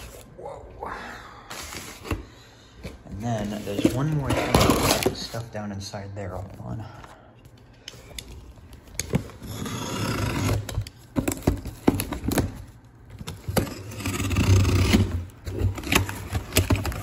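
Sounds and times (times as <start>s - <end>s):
cardboard scraping and rustling: 3.0s - 5.4s, 9.0s - 17.0s.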